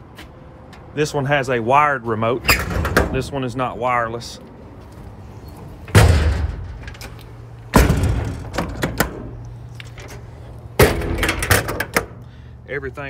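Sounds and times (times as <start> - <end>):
metal doors slamming shut: 2.4 - 3.5, 5.6 - 9.4, 10.0 - 12.2.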